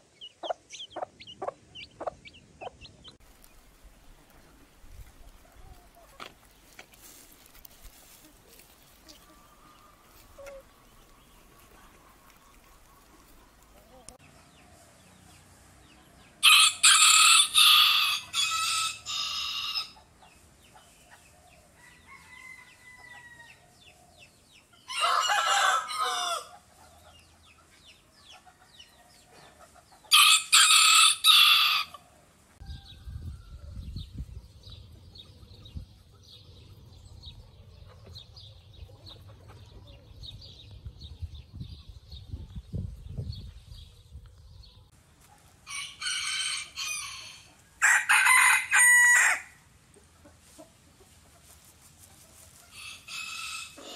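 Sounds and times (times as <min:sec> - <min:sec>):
rooster crowing: 0:16.4 - 0:20.0, 0:24.9 - 0:26.5, 0:30.1 - 0:32.0, 0:45.6 - 0:49.6.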